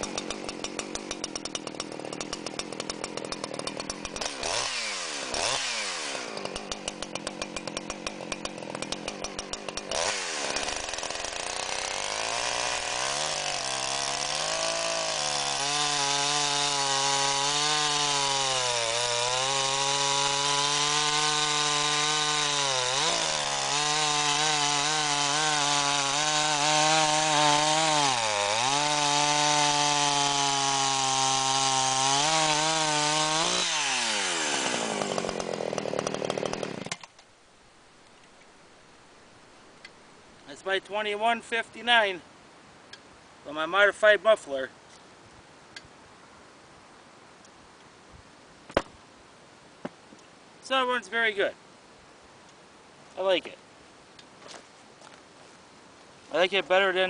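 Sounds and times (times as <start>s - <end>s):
chainsaw cutting through log: 0.0s - 37.2s
chainsaw idling unevenly: 0.0s - 37.2s.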